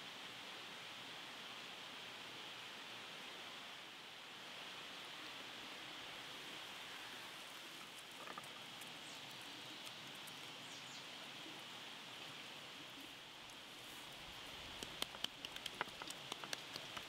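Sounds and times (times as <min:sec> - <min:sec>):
steady outdoor hiss: 0:00.0 - 0:17.0
salt grains ticking on meat: 0:14.3 - 0:17.0.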